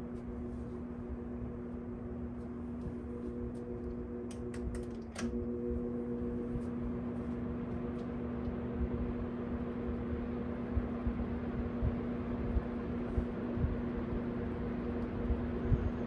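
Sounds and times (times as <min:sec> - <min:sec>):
box fan motor humming: 0:00.0 - 0:16.0
fan control click: 0:02.8 - 0:05.6.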